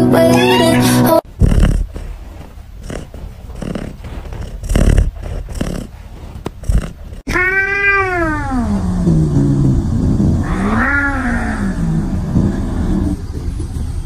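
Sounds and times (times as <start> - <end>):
soft rustling: 1.3 - 7.3
cat meowing: 6.8 - 8.7.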